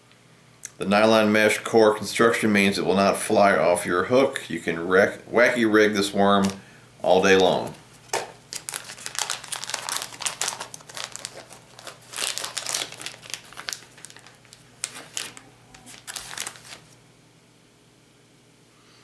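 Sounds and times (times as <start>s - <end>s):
plastic packet crinkling: 6.3s - 17.0s.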